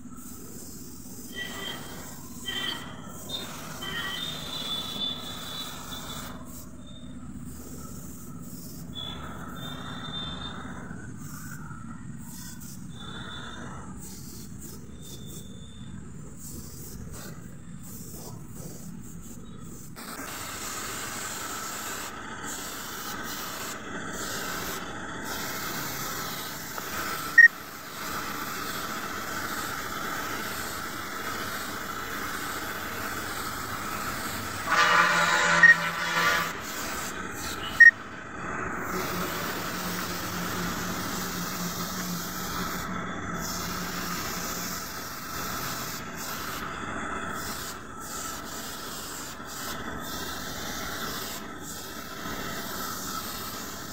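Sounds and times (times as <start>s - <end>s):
paint spray gun hissing: 0.0s - 53.9s
brief pitched tone: 35.1s - 36.2s.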